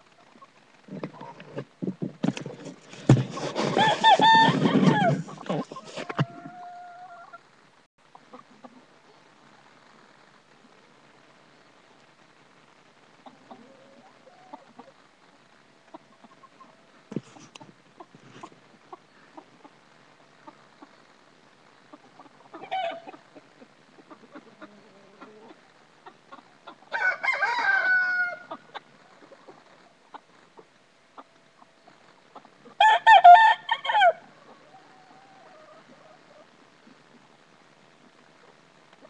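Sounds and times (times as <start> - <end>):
chickens calling: 0.1 - 9.2, 13.1 - 21.2, 21.8 - 37.5
rooster crowing: 3.6 - 5.2, 26.9 - 28.5, 32.8 - 34.2.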